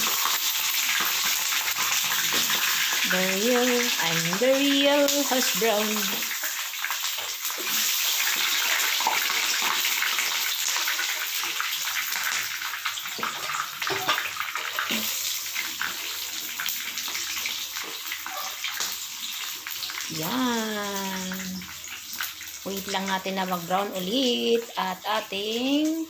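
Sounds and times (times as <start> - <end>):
oil crackling and popping: 0.0 - 24.7
hash browns sizzling in oil: 0.0 - 26.0.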